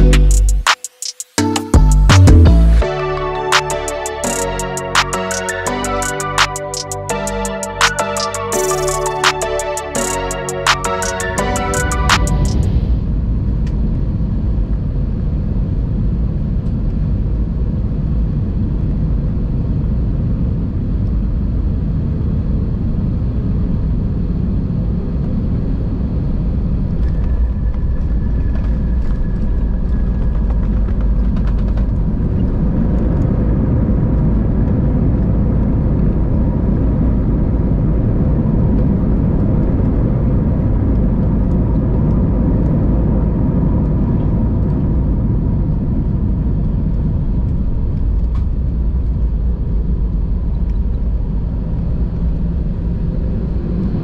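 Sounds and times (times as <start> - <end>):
jet engine and airflow rumble: 2.8 - 54.0
jet touching down with knocks: 27.0 - 36.1.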